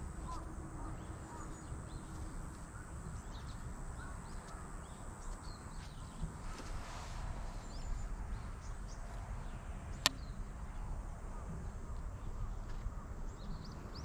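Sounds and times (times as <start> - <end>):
small birds chirping: 0.0 - 6.4
steady low rumble: 0.0 - 14.0.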